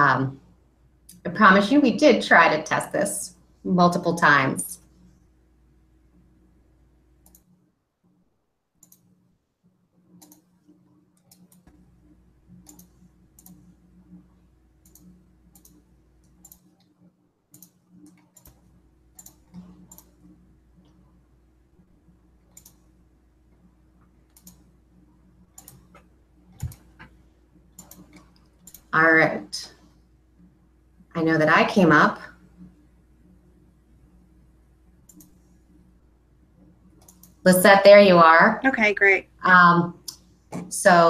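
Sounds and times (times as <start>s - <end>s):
low electrical hum: 0.0s - 41.0s
computer clicks: 7.2s - 7.5s, 8.8s - 9.1s, 10.2s - 10.5s, 12.6s - 13.6s, 14.8s - 16.9s, 17.5s - 18.6s, 19.2s - 20.2s, 22.5s - 22.8s, 24.3s - 24.7s, 25.5s - 27.1s, 27.7s - 28.9s, 35.0s - 35.4s, 37.0s - 37.4s.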